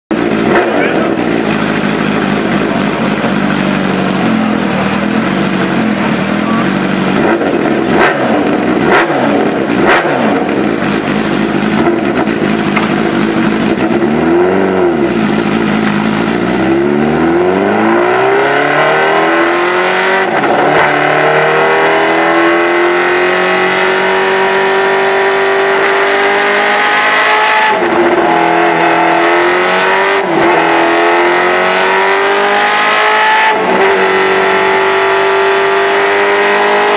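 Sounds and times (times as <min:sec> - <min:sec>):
exhaust cracks: 0:00.1 - 0:17.9
motorcycle engine revving: 0:00.1 - 0:36.9.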